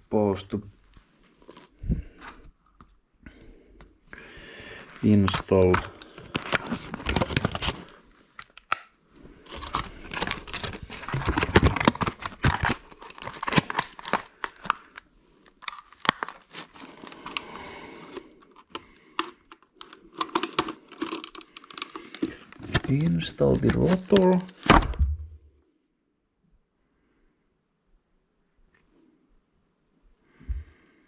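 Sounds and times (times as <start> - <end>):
plastic sheet crinkling: 5.0 - 8.8, 9.4 - 17.5, 19.8 - 24.7.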